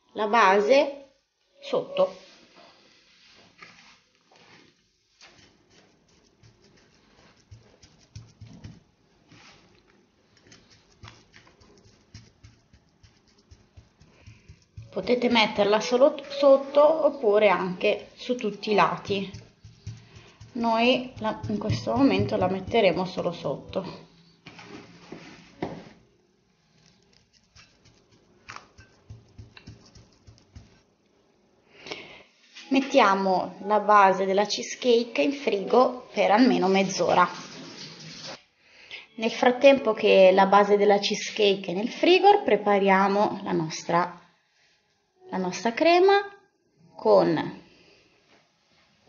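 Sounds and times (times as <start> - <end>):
baking paper rustling: 3.5 - 15.7, 18.0 - 26.0, 26.6 - 30.8
fingers patting crumbs: 5.1 - 8.9, 9.8 - 15.4, 18.3 - 24.0, 26.8 - 30.8
biscuit crumbs crunching: 9.8 - 15.0, 26.7 - 30.8.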